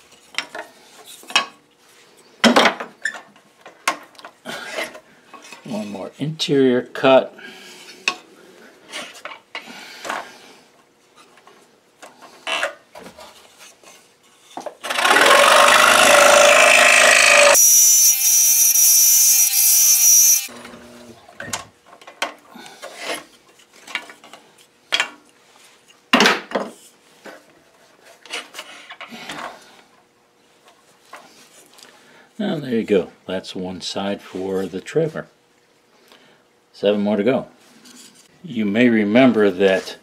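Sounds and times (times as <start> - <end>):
scroll saw cutting wood: 14.8 - 20.5.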